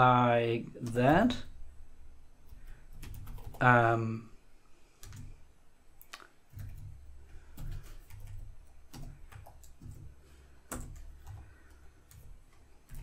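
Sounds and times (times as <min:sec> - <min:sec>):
low steady hum: 0:00.0 - 0:13.0
computer keyboard clicks: 0:03.0 - 0:03.6, 0:05.0 - 0:05.3, 0:06.0 - 0:07.0, 0:07.6 - 0:10.1, 0:10.7 - 0:13.0.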